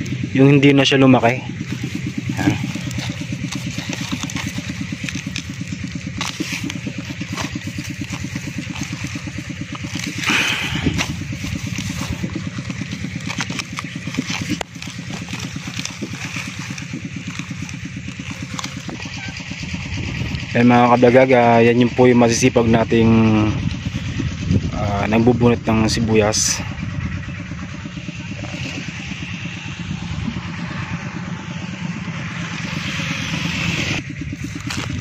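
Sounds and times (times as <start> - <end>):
small engine running: 0.0 - 35.0
onion leaves rustling and snapping: 1.5 - 20.5, 34.2 - 35.0.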